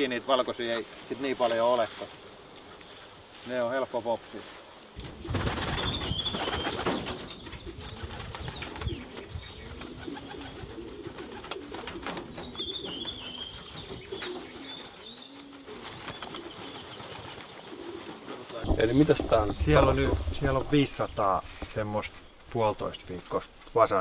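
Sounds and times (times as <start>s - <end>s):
pigeons cooing: 4.9s - 22.5s.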